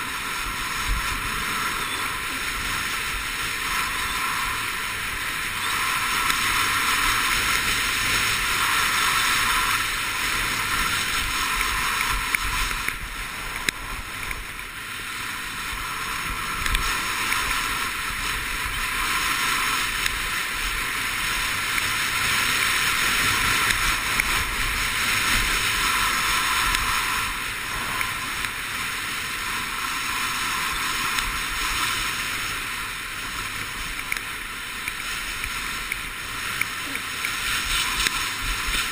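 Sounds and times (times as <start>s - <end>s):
skis scraping over snow: 0.0s - 38.9s
small clicks: 11.5s - 14.7s, 16.6s - 17.5s, 33.8s - 38.9s.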